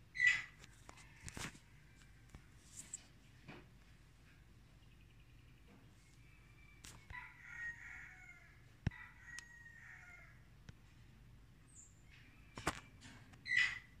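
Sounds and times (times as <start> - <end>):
rooster crowing: 6.4 - 10.5.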